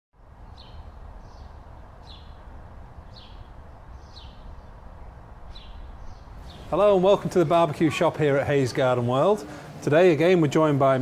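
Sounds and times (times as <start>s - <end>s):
low outdoor rumble: 0.2s - 11.0s
small bird chirping: 0.4s - 7.1s.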